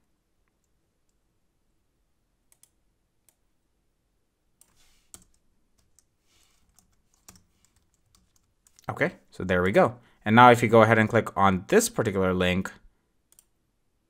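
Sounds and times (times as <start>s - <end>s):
computer keys clicking: 2.5s - 3.4s, 4.6s - 9.0s, 13.3s - 13.5s.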